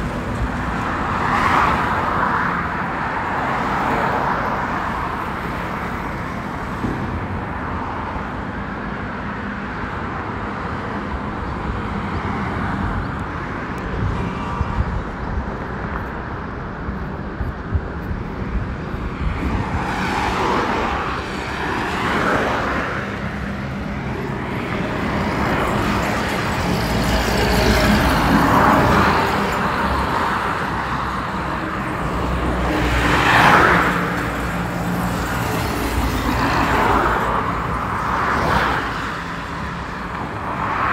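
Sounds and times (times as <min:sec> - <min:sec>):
steady road hum: 0:00.0 - 0:40.9
vehicles passing by: 0:00.0 - 0:40.9
truck passing: 0:20.3 - 0:40.9.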